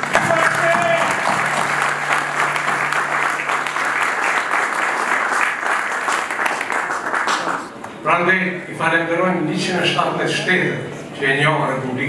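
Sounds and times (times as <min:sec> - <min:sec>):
crowd applauding: 0:00.0 - 0:08.0.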